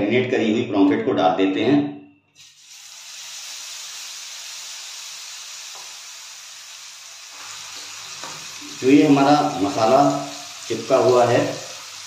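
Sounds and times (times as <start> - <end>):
fish sizzling in hot oil: 2.4 - 12.0.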